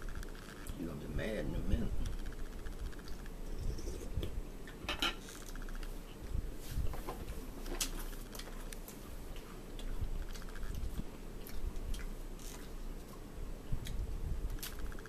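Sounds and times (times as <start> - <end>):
crackers being chewed: 7.8 - 15.0.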